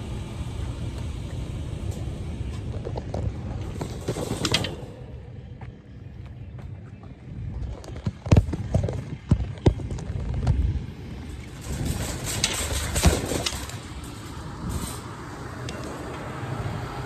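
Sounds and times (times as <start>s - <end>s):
wire shopping cart rattling: 1.6s - 5.4s, 11.0s - 16.1s.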